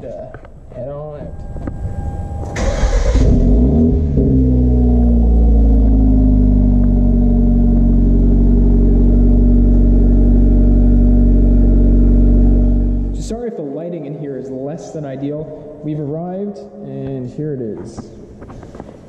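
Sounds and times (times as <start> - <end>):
car engine starting and idling: 1.2 - 13.4.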